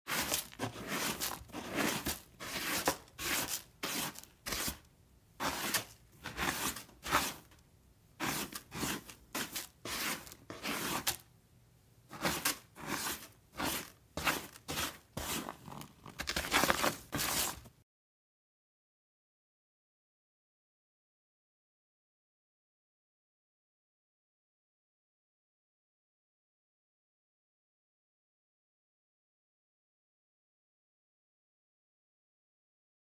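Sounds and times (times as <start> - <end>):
cat scratching in litter: 0.1 - 4.8, 5.4 - 7.5, 8.2 - 11.2, 12.1 - 17.7.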